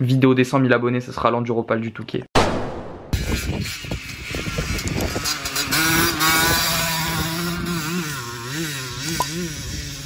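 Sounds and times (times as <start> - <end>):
dirt bike engine buzzing: 3.2 - 10.0.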